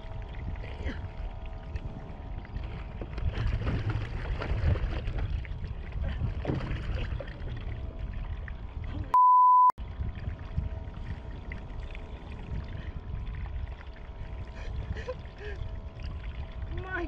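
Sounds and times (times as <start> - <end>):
wind on microphone: 0.0 - 9.1, 9.8 - 17.0
water noise: 0.0 - 9.2, 9.8 - 17.0
censor bleep tone: 9.1 - 9.8.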